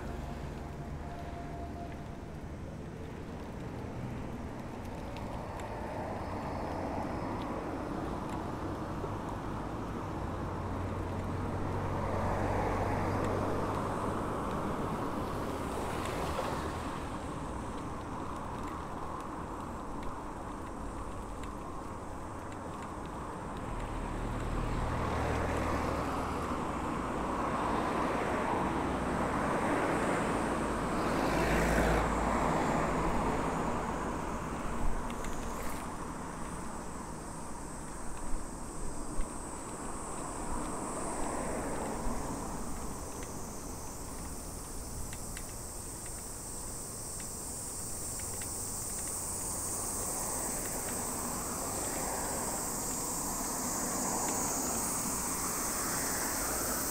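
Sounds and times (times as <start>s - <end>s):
road traffic: 0.0s - 56.9s
high insect drone: 5.0s - 9.0s, 11.3s - 56.9s
car passing: 23.8s - 56.9s
sharp clicks: 44.0s - 52.0s.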